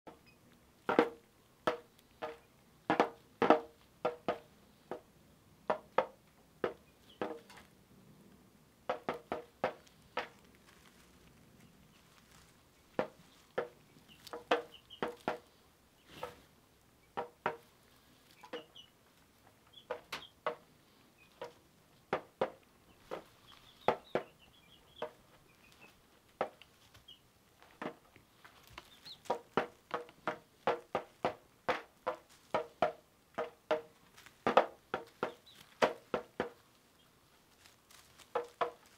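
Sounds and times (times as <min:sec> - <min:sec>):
chick pecking toy drum: 0:00.1 - 0:05.0, 0:08.9 - 0:10.4, 0:12.3 - 0:15.5, 0:28.7 - 0:36.6
chick cheeping: 0:18.3 - 0:19.0, 0:28.8 - 0:29.4.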